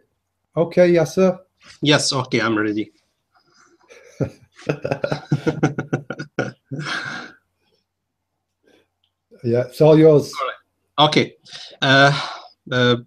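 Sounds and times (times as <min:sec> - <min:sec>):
man's muffled voice over call: 0:04.6 - 0:07.2, 0:09.5 - 0:13.0.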